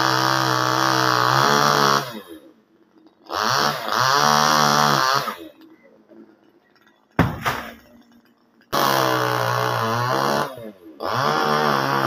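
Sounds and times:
chainsaw revving: 0:00.0 - 0:02.5, 0:03.2 - 0:05.6, 0:08.7 - 0:12.0
sharp knock: 0:07.2 - 0:07.8.

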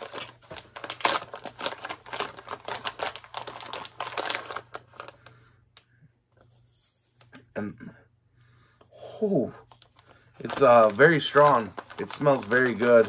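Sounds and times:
packaging crinkling: 0:00.0 - 0:05.4, 0:09.7 - 0:13.0.

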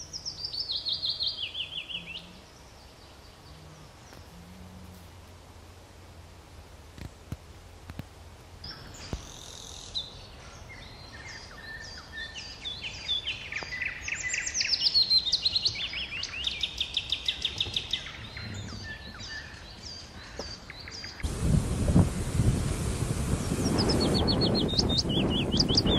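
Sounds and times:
songbird chirps and trills: 0:00.0 - 0:04.6, 0:08.6 - 0:21.3, 0:23.3 - 0:25.9
loud rush of noise: 0:21.2 - 0:25.9.

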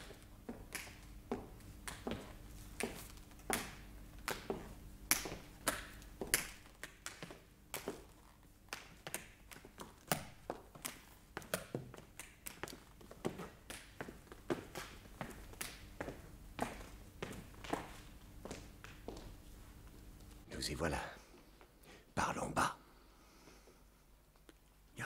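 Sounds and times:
footsteps going down stairs: 0:00.0 - 0:20.4.

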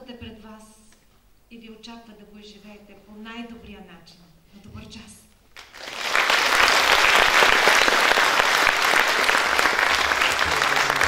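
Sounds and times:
audience applauding: 0:05.6 - 0:11.0.

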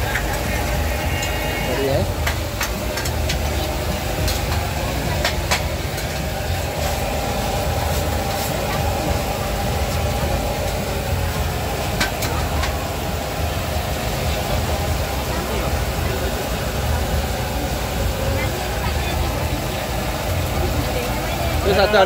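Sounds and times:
oil sizzling: 0:00.0 - 0:22.0
steady low rumble: 0:02.0 - 0:21.7.

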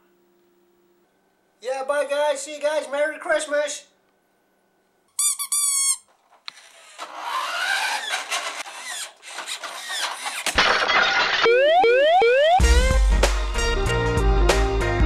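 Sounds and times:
toy car motor whirring: 0:05.2 - 0:10.6.

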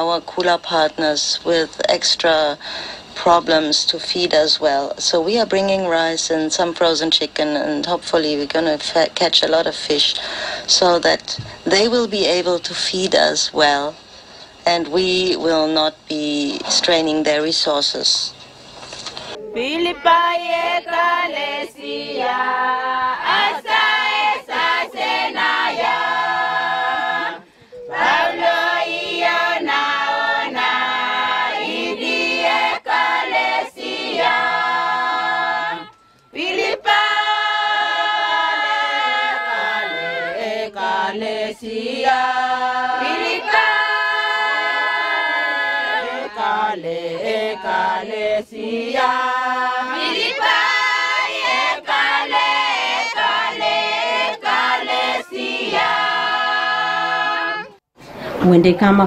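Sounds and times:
choir singing in harmony: 0:20.0 - 0:57.8.

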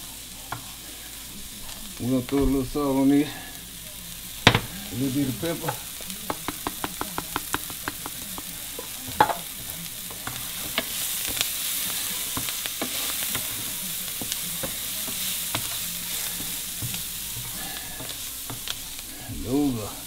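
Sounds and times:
onions sizzling in a skillet: 0:00.0 - 0:20.0
oil popping: 0:05.6 - 0:11.4.

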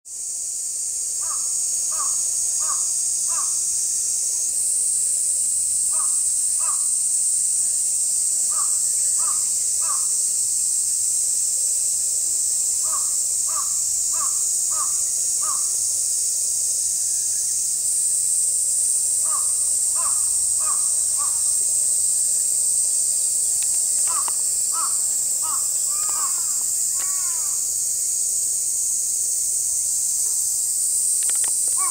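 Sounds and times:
high-pitched insect drone: 0:00.1 - 0:31.9
crows cawing: 0:01.2 - 0:03.6, 0:06.0 - 0:06.9, 0:08.5 - 0:10.1, 0:12.8 - 0:15.7, 0:19.2 - 0:21.5, 0:24.0 - 0:27.7.

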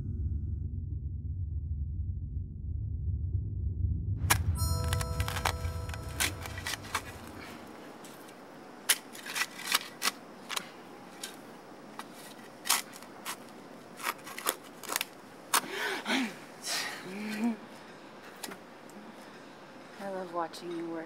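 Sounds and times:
low rumble: 0:00.0 - 0:07.4
shovel digging into rocky soil: 0:08.9 - 0:10.6.

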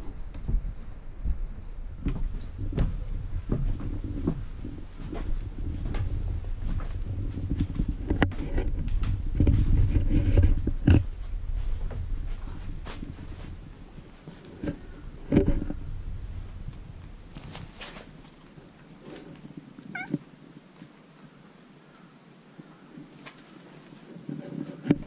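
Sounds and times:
footsteps on wooden stairs: 0:00.3 - 0:09.9.

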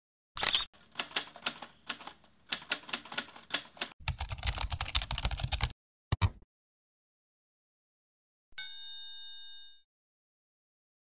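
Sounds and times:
keyboard typing clicks: 0:00.4 - 0:06.4.

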